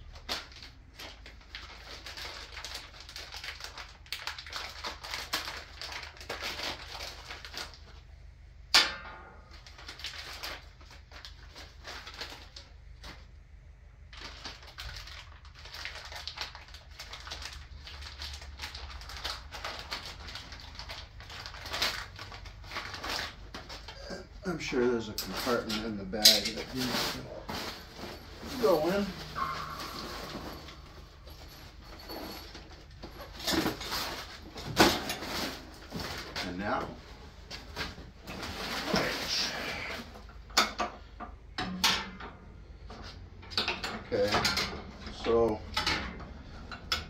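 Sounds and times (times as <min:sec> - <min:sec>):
plastic packaging crinkling: 0:00.0 - 0:08.1, 0:09.5 - 0:24.3, 0:25.2 - 0:40.2
sharp ringing hit: 0:29.1 - 0:32.2.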